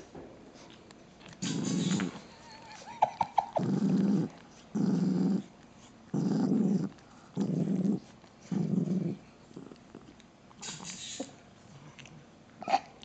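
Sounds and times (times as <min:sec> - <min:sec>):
dog growling low: 0:01.4 - 0:02.3, 0:03.3 - 0:10.2.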